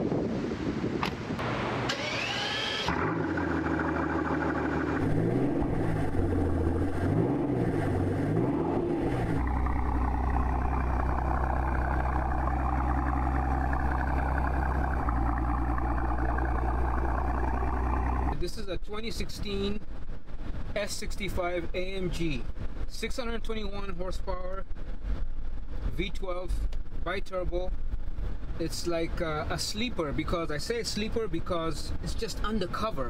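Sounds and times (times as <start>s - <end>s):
car engine revving and idling: 1.9s - 18.4s.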